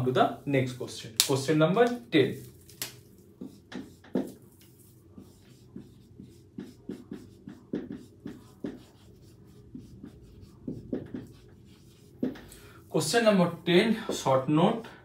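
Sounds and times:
marker writing on a whiteboard: 0:00.0 - 0:15.0.

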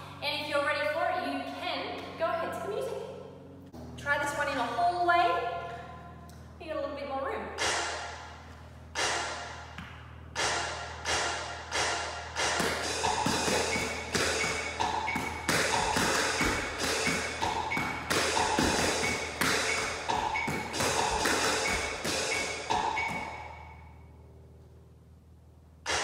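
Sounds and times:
music with steady beat: 0:09.0 - 0:23.7.

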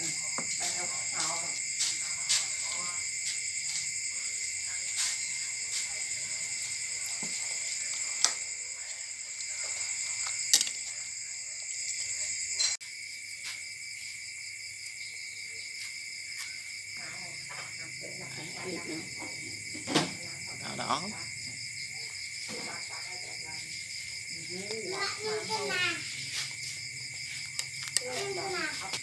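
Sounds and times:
crickets chirring: 0:00.0 - 0:29.0.

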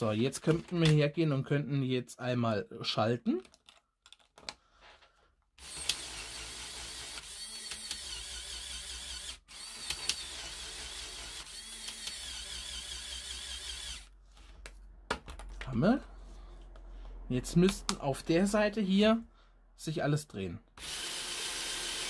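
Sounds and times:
toy electric motor whirring: 0:05.6 - 0:14.1, 0:20.8 - 0:22.0.

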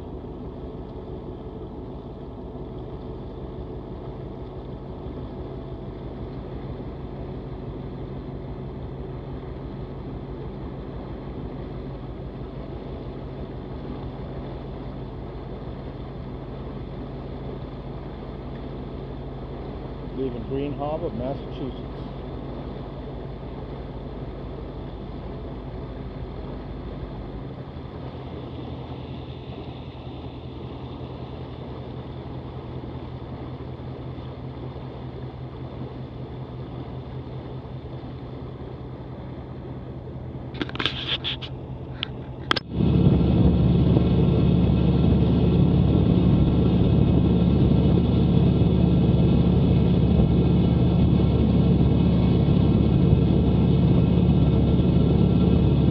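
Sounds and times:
boat engine running: 0:00.0 - 0:55.9.

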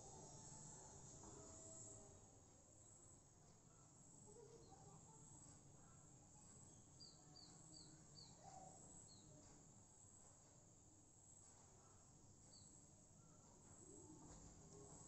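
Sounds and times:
faint high hiss: 0:00.0 - 0:03.3
faint bird chirps: 0:02.8 - 0:09.4.

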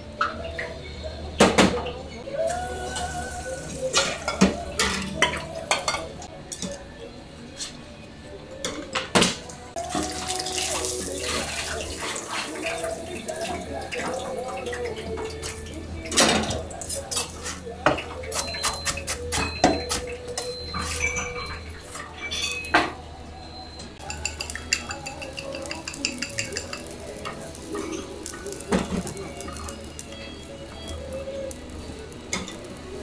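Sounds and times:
knocks and clinks of utensils: 0:14.6 - 0:23.0, 0:24.0 - 0:30.9, 0:32.3 - 0:32.7
quiet sizzle in pan: 0:24.0 - 0:33.0.

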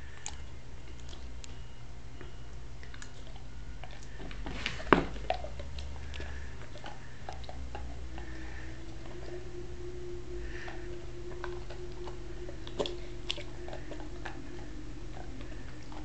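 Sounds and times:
teeth clicking on biscuit: 0:02.2 - 0:04.2
dog crunching a hard biscuit: 0:02.8 - 0:08.3.

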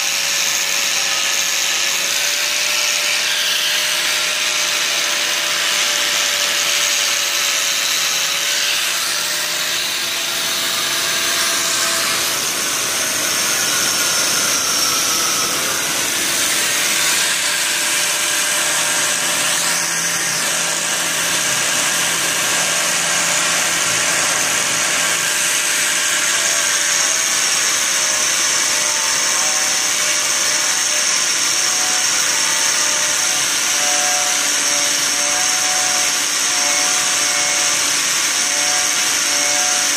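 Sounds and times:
angle grinder motor whine: 0:02.9 - 0:27.4.

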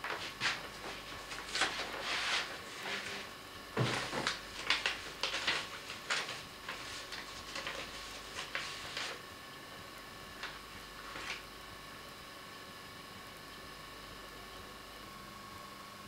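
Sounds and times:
paper rustling: 0:00.0 - 0:09.2, 0:10.4 - 0:11.4.

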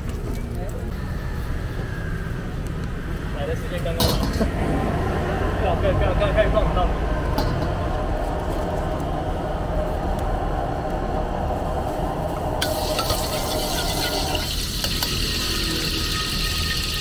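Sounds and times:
wok burner rushing: 0:11.8 - 0:17.0
oil sizzling in a wok: 0:12.6 - 0:17.0.

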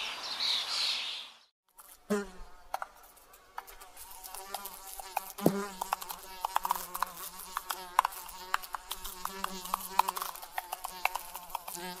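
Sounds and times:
insect buzzing: 0:01.7 - 0:12.0
sharp clicks and taps: 0:05.1 - 0:11.9.

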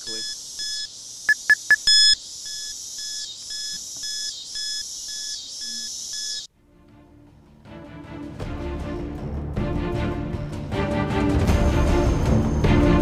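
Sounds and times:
electronic beeps: 0:00.0 - 0:06.5
high electronic hiss: 0:00.0 - 0:06.5.

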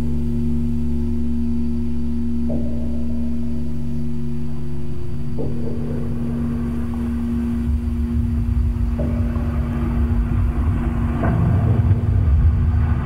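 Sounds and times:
deep rumble: 0:00.0 - 0:13.0
low droning hum: 0:00.0 - 0:13.0
rough noisy swell: 0:04.4 - 0:13.0.

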